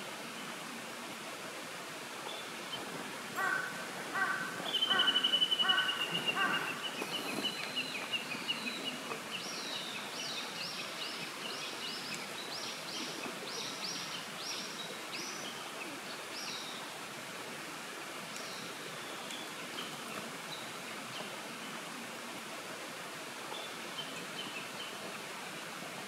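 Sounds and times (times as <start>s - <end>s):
steady background hiss: 0.0s - 26.0s
crow cawing: 3.4s - 6.8s
songbird downward-sweeping call: 4.2s - 8.7s.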